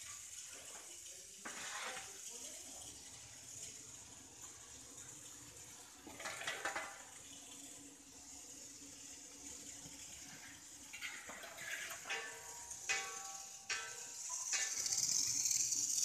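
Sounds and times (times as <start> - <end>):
milk boiling with bubbling hiss: 0.0 - 16.0
paddle stirring pan: 1.4 - 2.4, 10.2 - 16.0.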